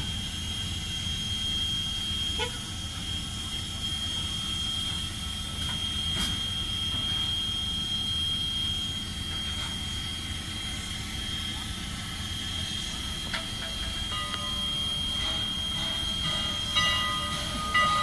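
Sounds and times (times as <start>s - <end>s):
steam locomotive rumble: 0.0s - 18.0s
thin high tone: 12.5s - 18.0s.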